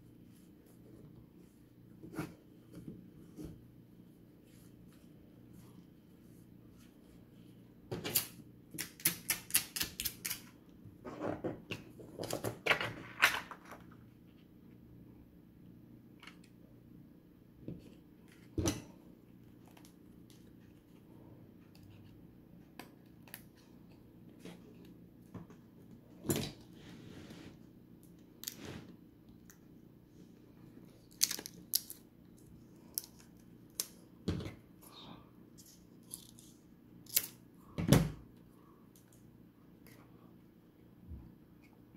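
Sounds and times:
plastic film clicks and crackles: 0:31.1 - 0:32.0.

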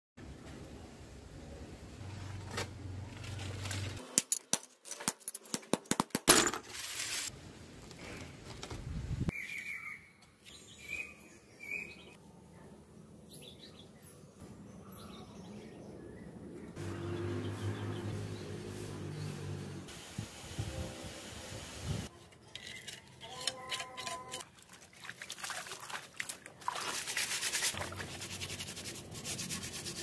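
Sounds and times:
background noise: 0:00.2 - 0:16.8
bird chirps: 0:09.3 - 0:12.2.

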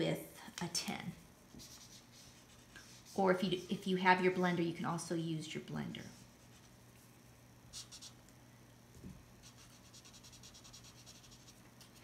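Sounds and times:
marker scratching on paper: 0:01.6 - 0:03.7, 0:07.7 - 0:08.2, 0:09.4 - 0:12.0.

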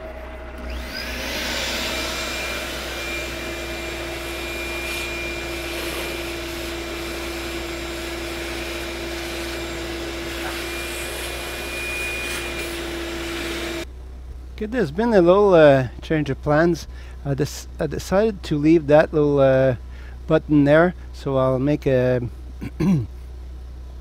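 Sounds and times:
shop vacuum running: 0:00.0 - 0:13.9.

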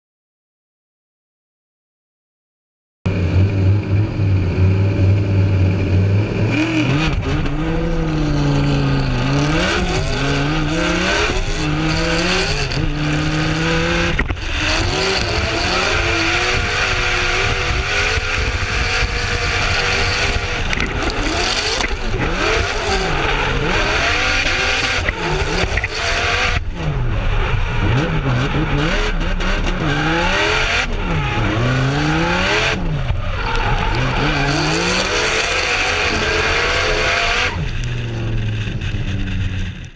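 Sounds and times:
car engines revving: 0:03.1 - 0:39.9
tyres screeching: 0:29.6 - 0:37.6.

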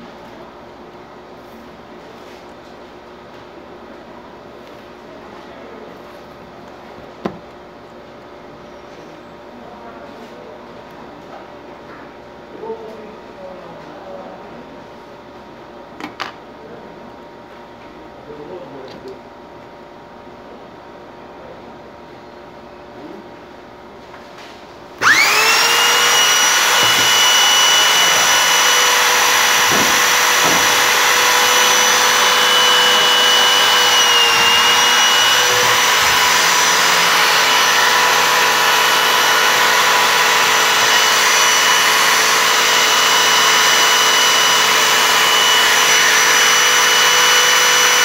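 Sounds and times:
electric drill whining: 0:25.0 - 0:48.0.

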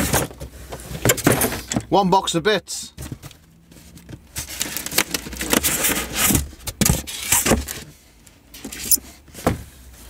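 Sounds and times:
cardboard boxes rummaged through: 0:03.0 - 0:07.9.

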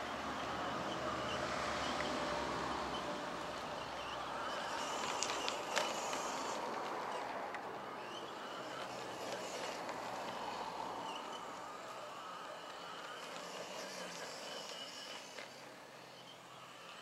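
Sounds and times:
electric rc truck motor: 0:00.0 - 0:17.0.

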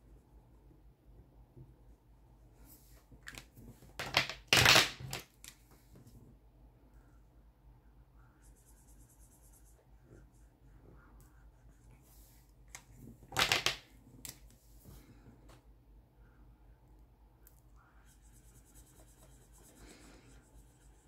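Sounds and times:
marker scratching on paper: 0:08.2 - 0:12.4, 0:17.8 - 0:21.0
marker handling rustle and knock: 0:12.3 - 0:15.6.

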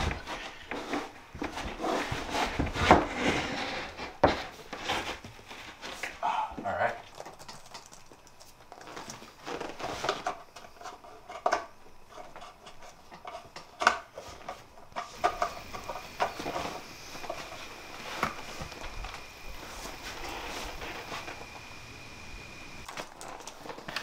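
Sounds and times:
light hiss: 0:15.1 - 0:22.9.

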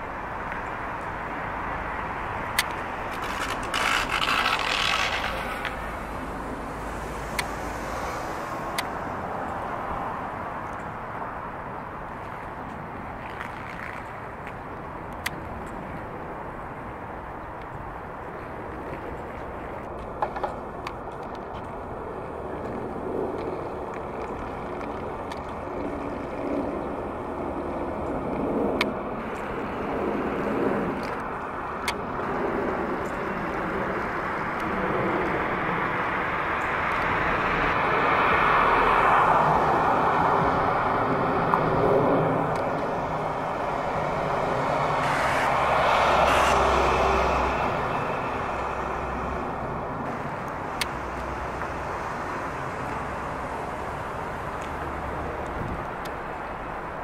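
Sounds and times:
urban traffic hum: 0:00.0 - 0:57.0
rasping scraping burst: 0:03.2 - 0:05.8.

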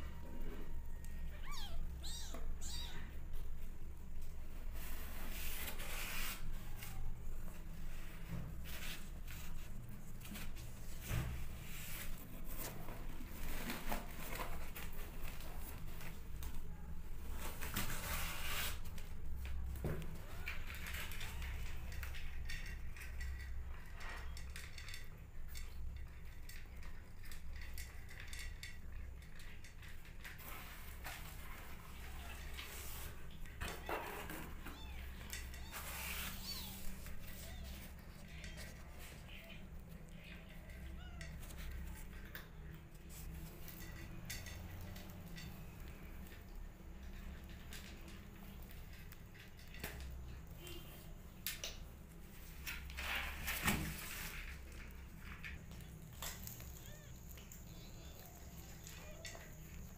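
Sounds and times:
kittens mewing: 0:01.2 - 0:03.2, 0:56.4 - 0:59.9.

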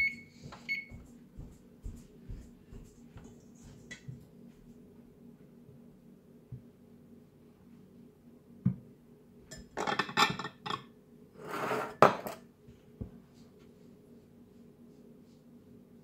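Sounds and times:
china dishes clattering: 0:09.5 - 0:10.8
short scrape: 0:11.4 - 0:12.0.

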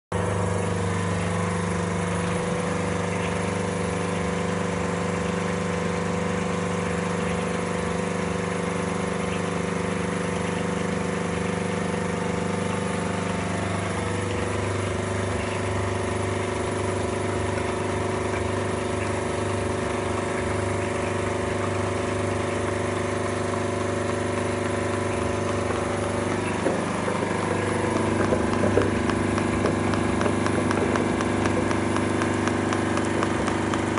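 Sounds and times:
press motor humming: 0:00.2 - 0:33.9
irregular clicks: 0:26.4 - 0:33.9.

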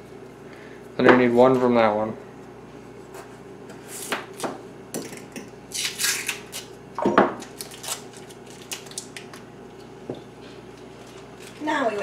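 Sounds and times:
butter wrappers rustling: 0:07.4 - 0:09.5, 0:10.6 - 0:12.0.

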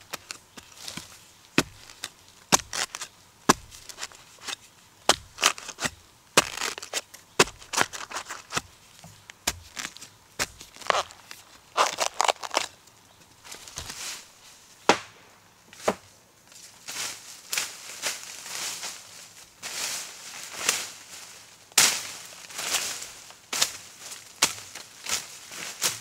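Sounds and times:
footsteps crunching on dry leaves: 0:00.0 - 0:14.6.

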